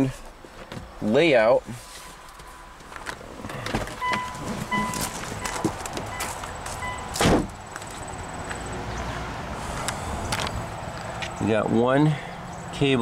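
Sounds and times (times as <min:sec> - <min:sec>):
rustling and small knocks: 0:01.8 - 0:06.8
car warning chime beeping: 0:04.0 - 0:07.2
loud thump: 0:07.1 - 0:07.6.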